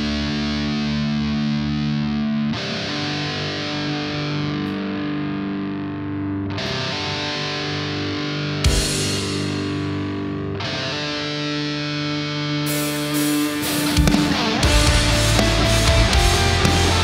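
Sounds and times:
distorted electric guitar chords: 0:00.0 - 0:17.0.

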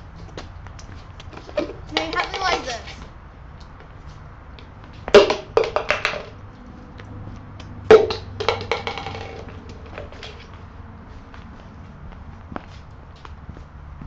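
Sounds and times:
can and plastic tub knocking: 0:05.1 - 0:06.4, 0:07.9 - 0:09.5.

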